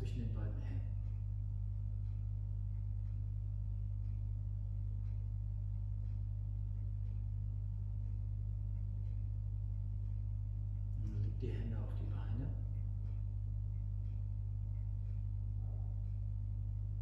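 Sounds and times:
low room hum: 0.0s - 17.0s.

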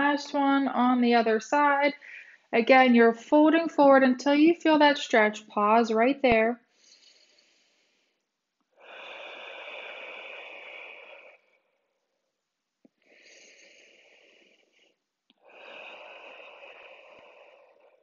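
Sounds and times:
woman breathing slowly: 2.0s - 2.5s, 6.6s - 12.2s, 12.9s - 18.0s.

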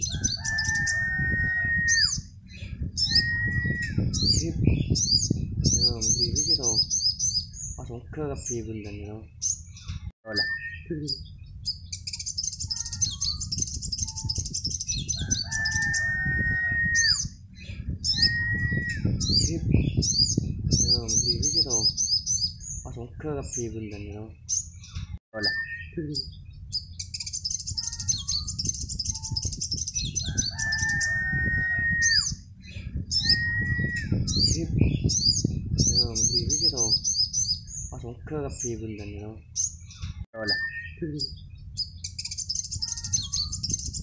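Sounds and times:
long steady bird whistle: 0.0s - 2.3s, 3.0s - 4.0s, 15.2s - 17.3s, 18.1s - 19.1s, 29.0s - 32.4s, 33.1s - 34.2s
sunbird twittering trill: 0.0s - 23.0s, 23.6s - 44.0s
fast high-pitched bird chattering: 9.3s - 23.0s, 24.4s - 38.8s, 40.8s - 44.0s
bird held call: 30.2s - 32.4s.

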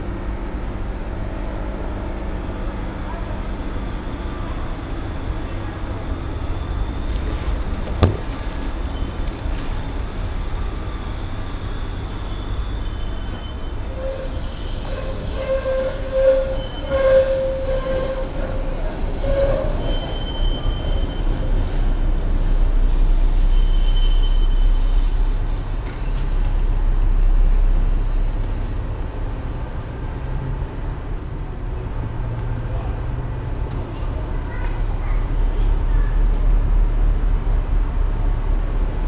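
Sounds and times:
tram rumbling along track: 0.0s - 39.0s
tram wheels squealing on rails: 2.7s - 30.6s.

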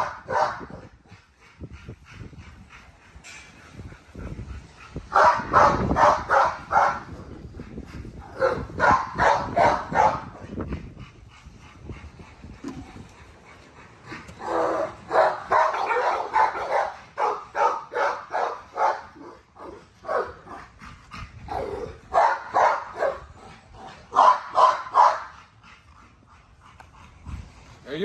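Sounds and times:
puppies barking and yipping: 13.2s - 20.6s.

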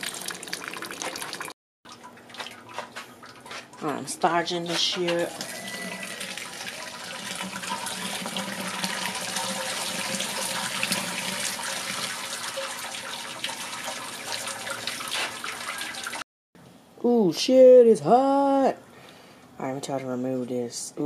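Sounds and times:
liquid pouring into metal pot: 0.0s - 2.4s, 5.3s - 16.2s.

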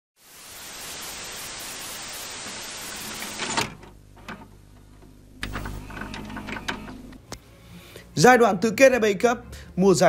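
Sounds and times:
static hiss: 0.2s - 4.3s.

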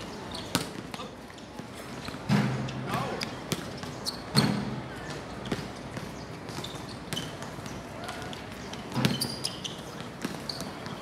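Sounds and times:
basketball bouncing on hard court: 0.5s - 1.1s, 3.5s - 8.2s, 8.9s - 11.0s.

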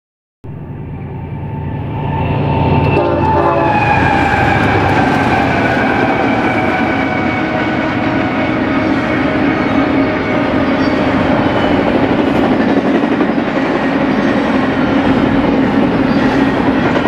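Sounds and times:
diesel locomotive engines: 0.4s - 17.0s
wheels rumbling on rails: 0.5s - 17.0s
train air horn: 1.1s - 11.1s.

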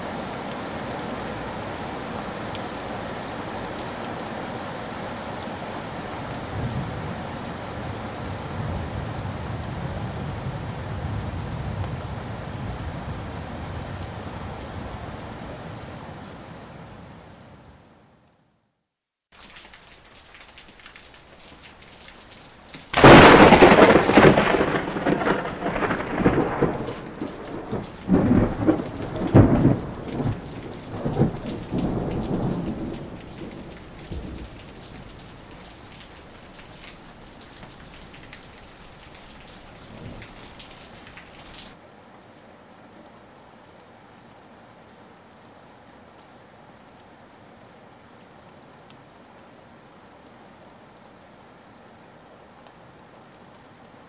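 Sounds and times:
steady rain: 0.0s - 54.0s
loud thunderclap: 22.9s - 35.0s
rolling thunder rumbles: 22.9s - 41.6s.

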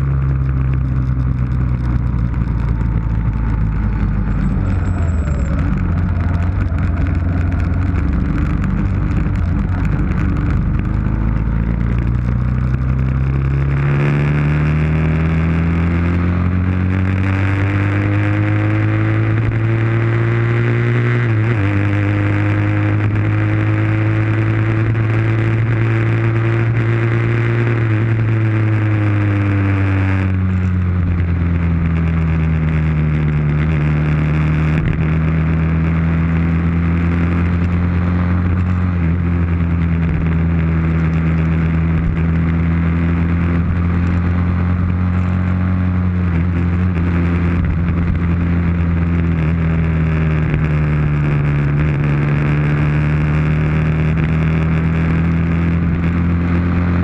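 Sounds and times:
motorcycle engine: 0.0s - 57.0s
wind rush on microphone: 1.4s - 13.2s.

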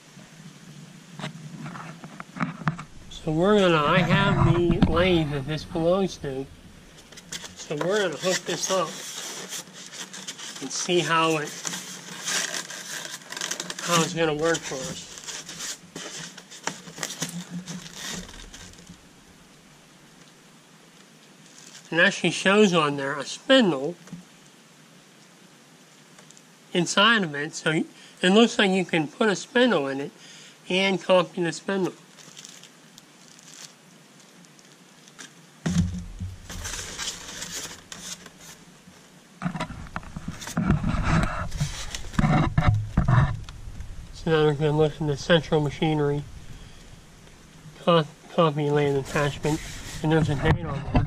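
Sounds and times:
foam packing and metal parts shifted: 1.6s - 19.1s, 35.1s - 38.6s, 39.4s - 51.0s
styrofoam scratching and crackling: 1.6s - 19.1s, 21.4s - 22.2s, 31.7s - 51.0s
low rumble: 2.8s - 7.2s, 35.7s - 37.4s, 41.5s - 47.8s.

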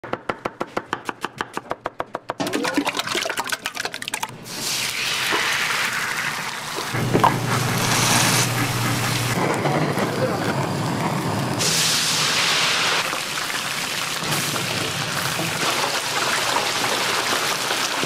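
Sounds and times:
knife chopping onion on board: 0.0s - 2.4s
egg batter sizzling in pan: 11.7s - 18.0s.

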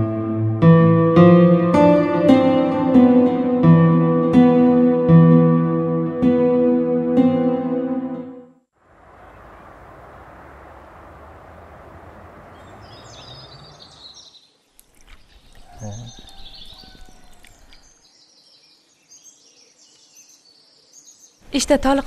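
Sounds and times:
steady rushing noise: 8.8s - 12.9s
small birds chirping: 9.2s - 22.0s.

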